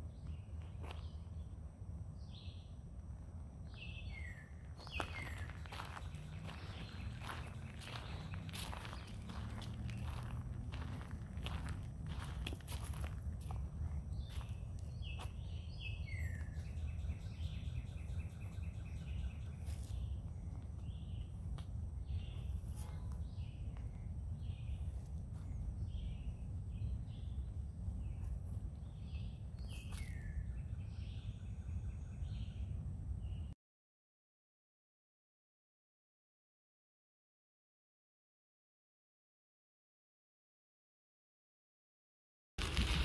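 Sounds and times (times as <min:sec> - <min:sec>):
songbirds calling: 0:00.0 - 0:01.6, 0:03.6 - 0:33.6
steady low rumble: 0:00.0 - 0:33.6.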